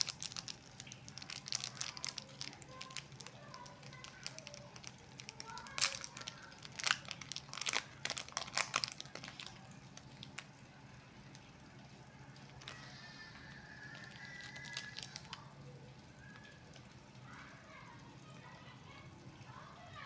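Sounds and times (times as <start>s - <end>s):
wrapper crinkling: 0.0s - 11.6s, 12.2s - 15.5s.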